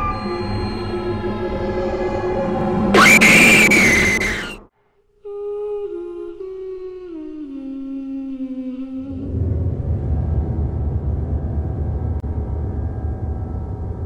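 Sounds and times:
horror film score: 0.0 - 4.7, 9.0 - 14.0
loud shrill scream: 2.9 - 4.6
person humming a slow tune: 5.2 - 9.4
low rumble: 9.1 - 14.0.

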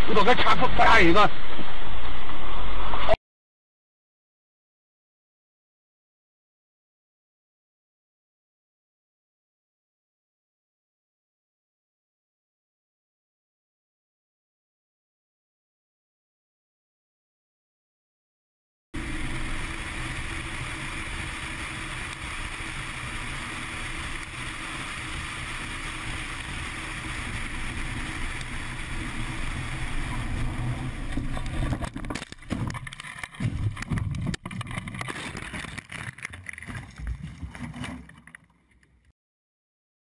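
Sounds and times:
car driving noise: 19.0 - 38.3.

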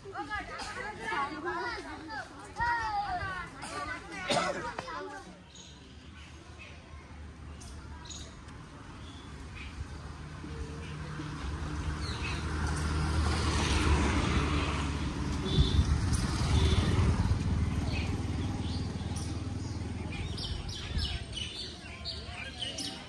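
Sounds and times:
small birds chirping: 5.4 - 13.8, 15.4 - 23.0
vehicle engine passing by: 10.1 - 20.6.

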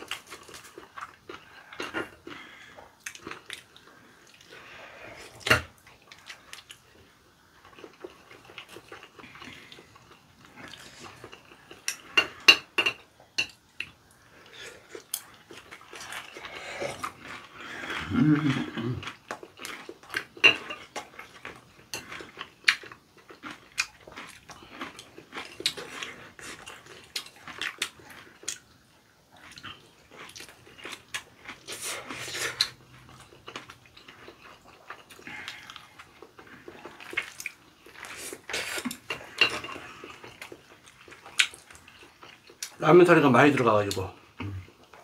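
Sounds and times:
person chewing: 0.0 - 42.8
slurping noodles: 31.6 - 32.8.

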